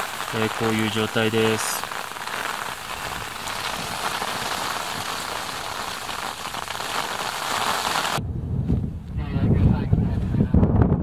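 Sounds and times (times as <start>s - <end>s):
snow and ice pellets on tent: 0.0s - 8.2s.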